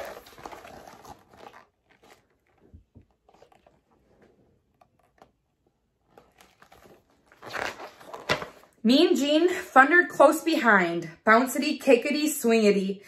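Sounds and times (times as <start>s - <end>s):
faint book rustles: 0.0s - 8.8s.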